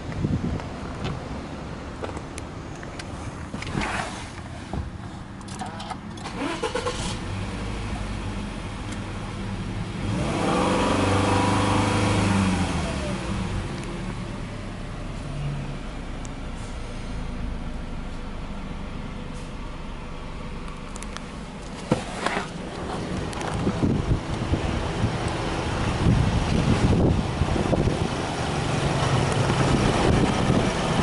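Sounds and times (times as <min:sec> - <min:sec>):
car engine revving and idling: 0:00.0 - 0:31.0
starter motor cranking: 0:06.2 - 0:07.2.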